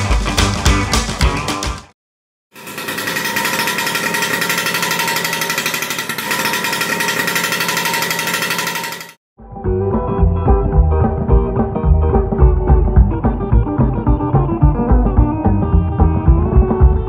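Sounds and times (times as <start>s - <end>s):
music: 0.0s - 1.9s, 9.4s - 17.0s
scooter engine running: 2.6s - 9.2s.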